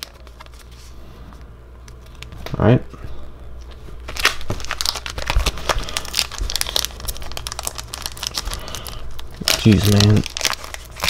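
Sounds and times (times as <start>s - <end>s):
foil wrapper crinkling and tearing: 0.0s - 0.8s, 4.0s - 11.0s.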